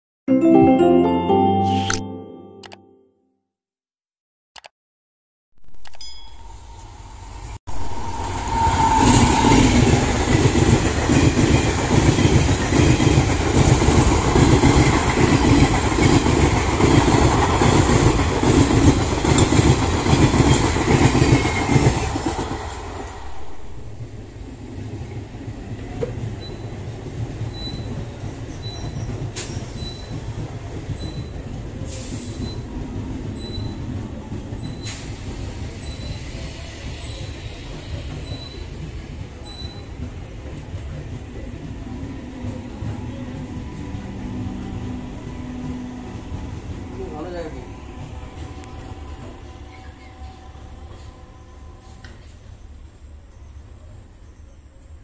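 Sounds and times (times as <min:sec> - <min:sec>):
distant train rolling: 0:06.4 - 0:54.8
train wheels clattering over rails: 0:09.2 - 0:23.1, 0:25.7 - 0:43.0.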